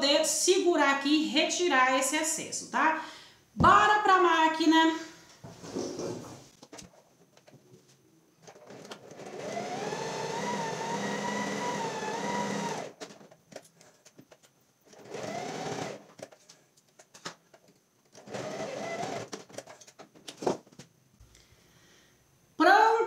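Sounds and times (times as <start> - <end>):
sewing machine motor whine: 8.7 - 13.0, 15.0 - 16.1, 18.2 - 19.3.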